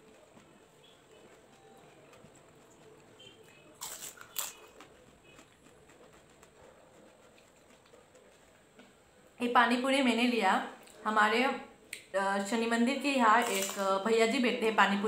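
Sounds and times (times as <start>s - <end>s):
crisp shells crunching: 3.8s - 4.8s, 13.4s - 13.9s.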